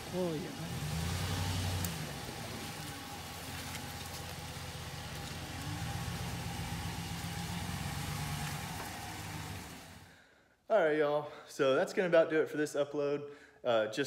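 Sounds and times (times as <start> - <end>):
truck engine driving past: 0.0 - 10.1.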